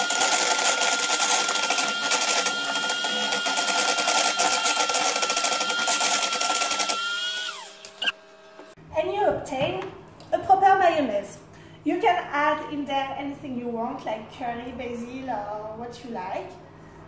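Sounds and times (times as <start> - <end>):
electric hand mixer whining: 0.0 - 8.7.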